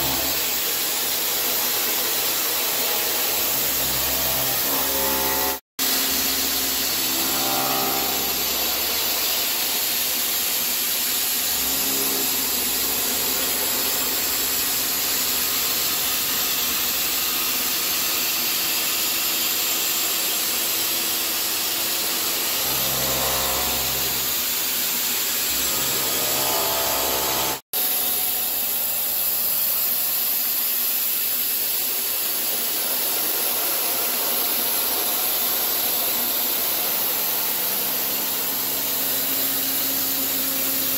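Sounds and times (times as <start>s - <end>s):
milling machine cutting hiss: 0.0s - 17.4s
spindle hum: 3.6s - 9.4s.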